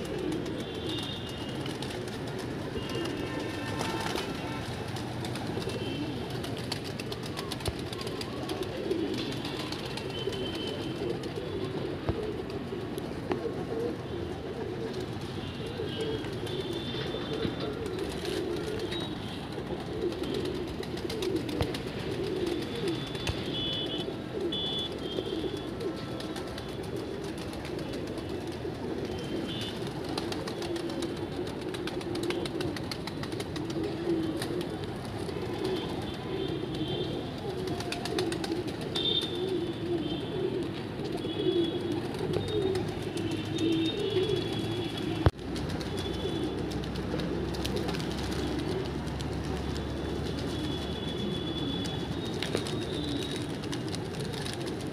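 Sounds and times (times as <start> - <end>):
wings fluttering: 0.0 - 11.6, 15.9 - 24.0, 25.0 - 34.8, 41.8 - 54.9
pigeons cooing: 0.0 - 54.9.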